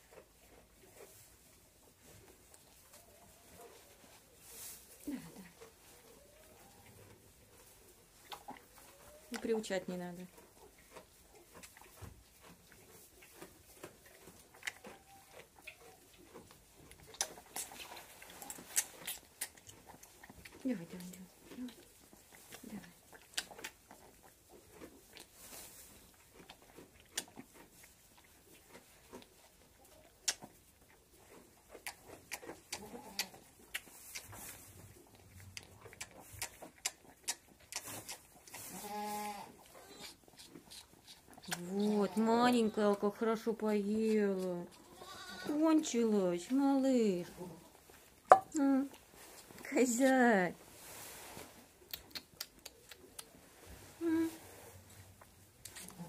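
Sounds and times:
goat kid sucking from bottle: 0:04.6 - 0:43.4, 0:44.0 - 0:45.6, 0:50.8 - 0:56.0
goat bleating: 0:38.7 - 0:40.2, 0:44.8 - 0:45.6.

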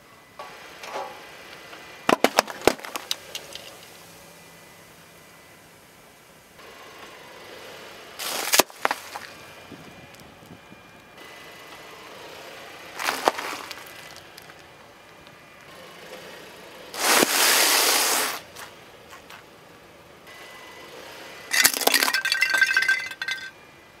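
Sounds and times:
bag of cornflakes crunching: 0:08.2 - 0:09.3, 0:13.0 - 0:14.7
foil wrapper crackling: 0:08.2 - 0:09.3, 0:13.0 - 0:14.7
brittle object shattering: 0:21.5 - 0:23.5.

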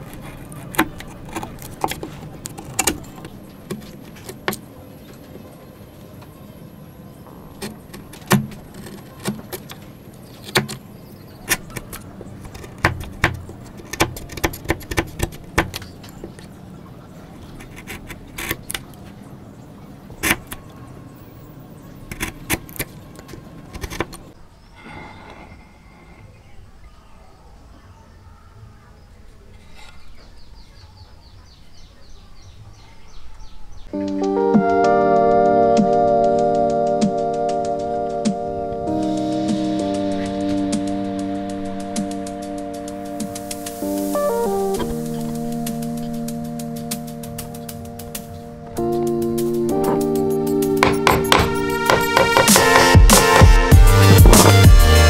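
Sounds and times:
chisel cutting wood: 0:00.0 - 0:04.7, 0:07.3 - 0:16.5, 0:17.5 - 0:19.0, 0:20.2 - 0:20.6, 0:22.0 - 0:26.2, 0:50.8 - 0:55.0.

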